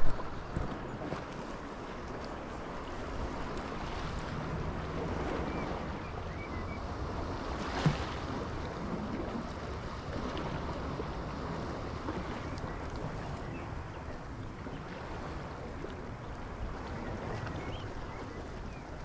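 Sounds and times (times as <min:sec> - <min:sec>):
waves washing against rocks: 0:00.0 - 0:01.4
wind on microphone: 0:00.0 - 0:19.0.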